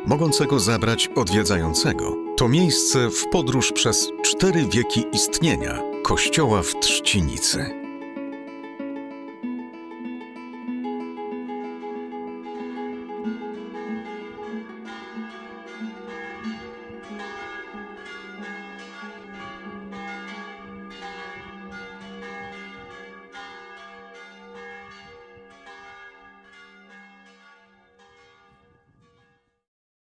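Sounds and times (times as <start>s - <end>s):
bell-like struck notes music: 0.0s - 7.7s, 12.4s - 26.0s.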